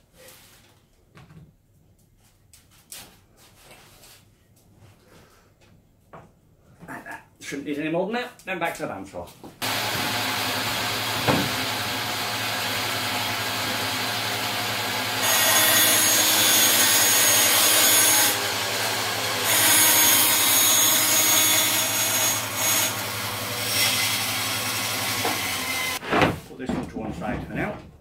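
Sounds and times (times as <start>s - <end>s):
bandsaw cutting wood: 9.6s - 26.1s.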